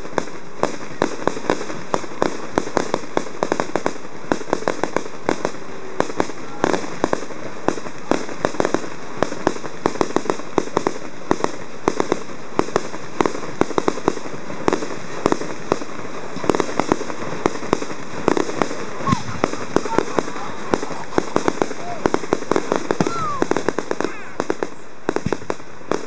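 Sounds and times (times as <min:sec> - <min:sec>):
fireworks popping and cracking: 0:00.0 - 0:26.0
steady hiss: 0:00.0 - 0:26.0.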